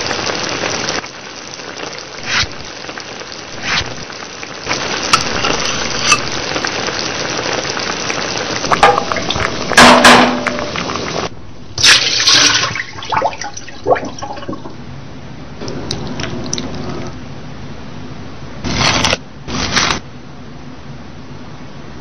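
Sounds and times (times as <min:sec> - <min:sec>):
sauce sizzling in a pan: 0:00.0 - 0:09.8.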